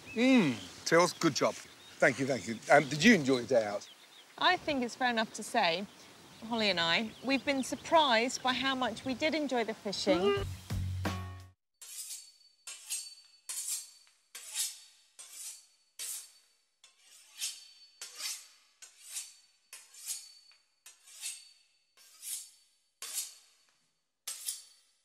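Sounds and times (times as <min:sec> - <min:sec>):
knife sawing through crisp pastry: 0:11.8 - 0:23.6.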